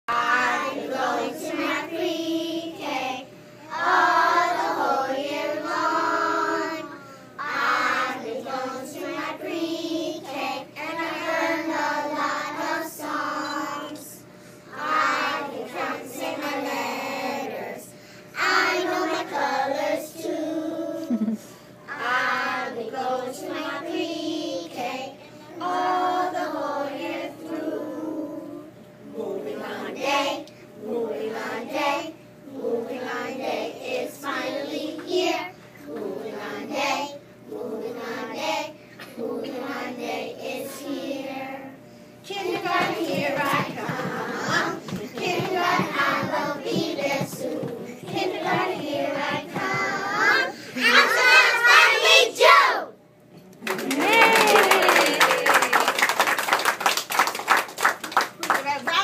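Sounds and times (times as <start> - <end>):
young children singing: 0.1 - 21.2, 42.3 - 52.8.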